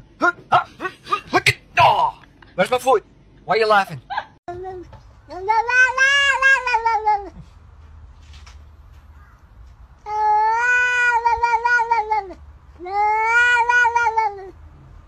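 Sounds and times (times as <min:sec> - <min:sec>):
cat meowing: 0:05.3 - 0:07.4, 0:10.1 - 0:14.6.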